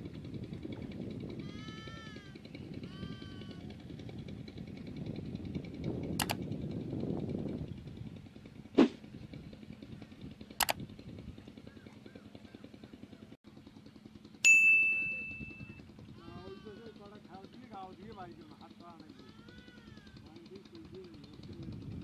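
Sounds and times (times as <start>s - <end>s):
low outdoor rumble: 0.0s - 22.0s
short sharp clicks: 6.2s - 6.4s
high bell-like ding: 14.4s - 15.8s.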